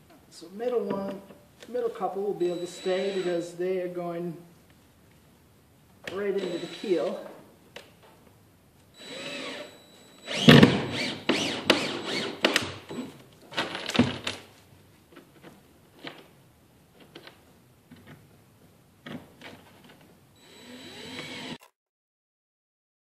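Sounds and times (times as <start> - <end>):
cordless drill driving screws: 2.5 - 3.4, 6.1 - 7.2, 9.0 - 13.1, 20.4 - 21.7.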